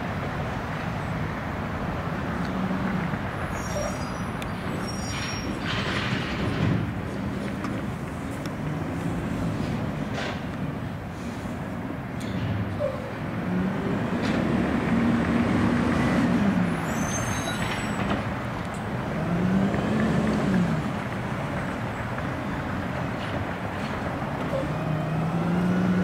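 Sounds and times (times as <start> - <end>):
garbage truck engine pulling away: 2.2 - 10.9, 12.4 - 26.0
high squeal: 3.4 - 6.0, 16.8 - 18.1.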